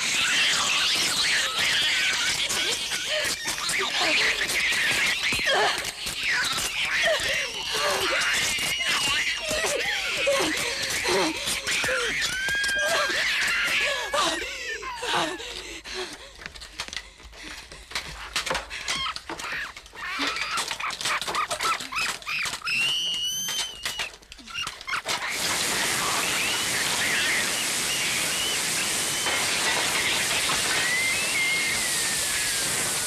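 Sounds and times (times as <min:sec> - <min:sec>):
loud steady spray hiss: 0:00.0 - 0:05.2, 0:25.2 - 0:33.0
monster squeals and shrieks: 0:00.0 - 0:15.4, 0:18.8 - 0:33.0.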